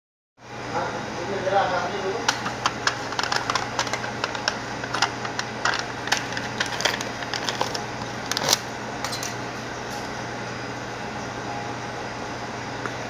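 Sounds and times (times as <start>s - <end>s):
foil lid crinkling: 2.3s - 8.7s.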